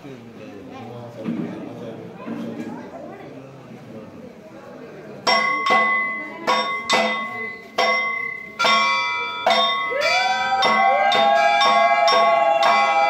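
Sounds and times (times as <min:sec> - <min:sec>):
temple bells ringing: 0:05.3 - 0:13.0.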